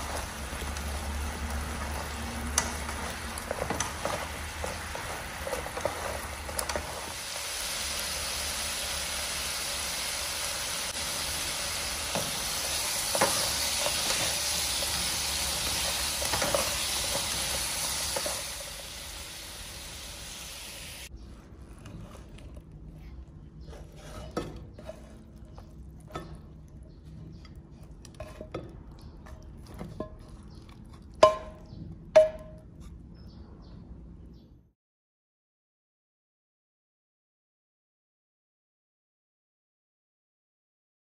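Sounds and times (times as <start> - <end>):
tofu sizzling in a frying pan: 0.0 - 21.1.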